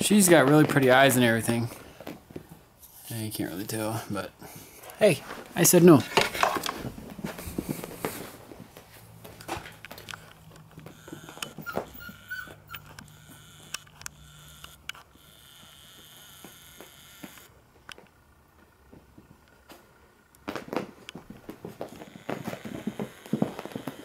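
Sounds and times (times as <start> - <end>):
puppies scuffling on carpet: 5.2 - 12.2
puppy whining: 10.7 - 13.7.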